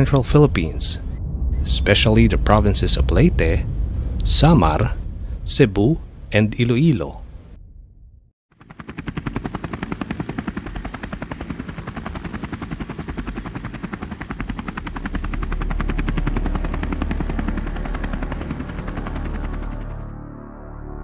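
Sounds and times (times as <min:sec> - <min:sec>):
low engine drone: 0:00.0 - 0:06.4, 0:07.2 - 0:21.0
helicopter rotor chopping: 0:08.5 - 0:20.2.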